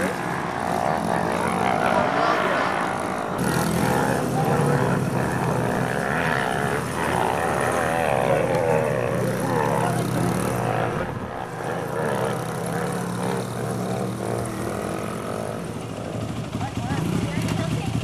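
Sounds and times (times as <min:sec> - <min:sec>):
small dirt bike engine buzzing: 0:00.0 - 0:18.0.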